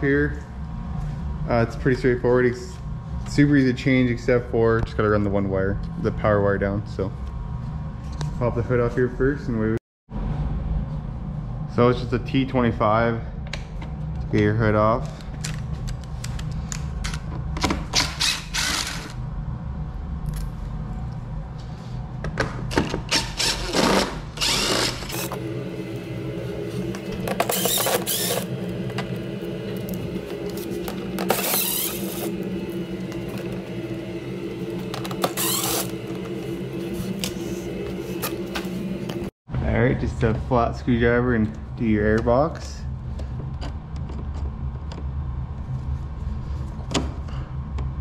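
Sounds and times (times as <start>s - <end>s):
impact driver running: 18.0s - 19.2s, 23.1s - 25.4s, 27.2s - 29.1s.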